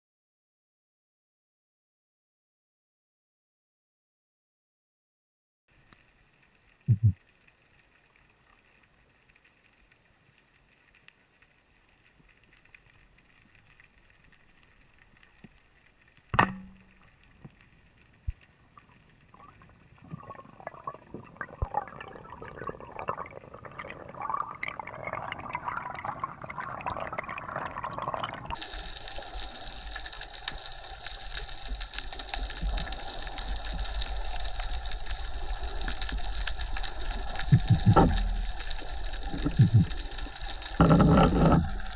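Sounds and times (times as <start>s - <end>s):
crackling water noise: 5.7s - 41.9s
speargun snap underwater: 16.4s - 16.9s
loud steady hiss: 28.6s - 41.6s.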